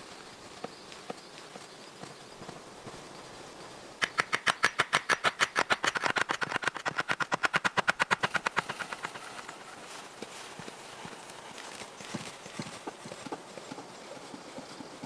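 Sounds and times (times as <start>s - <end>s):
rapid sharp knocks: 4.0s - 9.5s.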